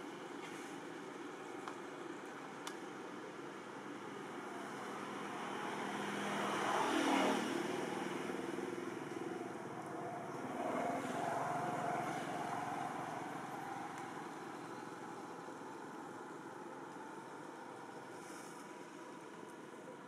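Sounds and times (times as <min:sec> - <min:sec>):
vehicle engine passing: 0:04.2 - 0:18.6.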